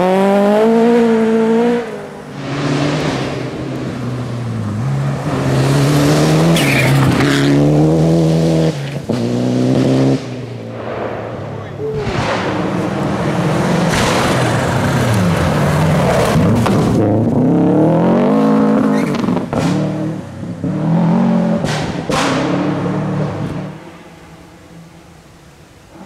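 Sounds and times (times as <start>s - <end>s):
rally car engine revving: 0.0s - 24.4s
sharp cracks: 10.7s - 13.1s, 13.8s - 15.4s.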